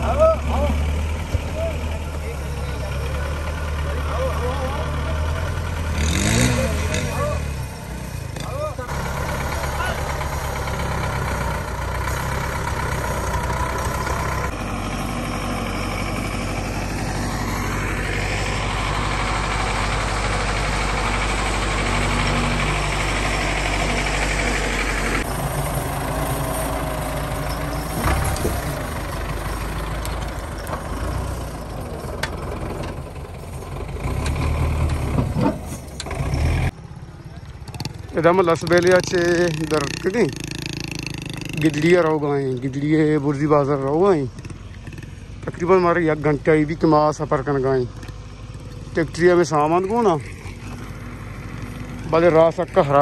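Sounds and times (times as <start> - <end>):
tractor diesel engine running: 0.0 - 53.0.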